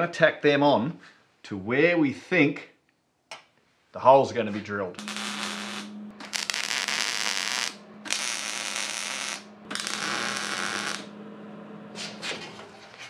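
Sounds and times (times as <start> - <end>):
low steady hum: 4.4 - 13.0
welder crackling hiss: 5.0 - 11.1.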